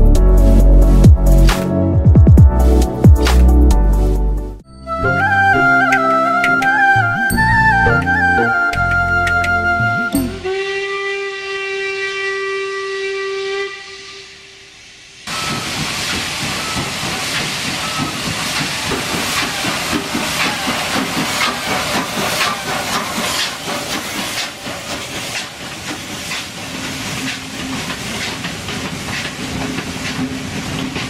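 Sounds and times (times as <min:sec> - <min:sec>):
steam whistle: 0:05.0 - 0:23.6
steam locomotive chuffing: 0:11.4 - 0:31.0
train rolling by: 0:14.5 - 0:31.0.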